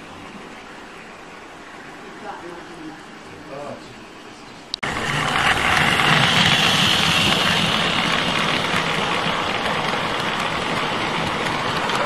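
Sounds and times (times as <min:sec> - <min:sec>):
model train motor whirring: 0:04.8 - 0:12.0.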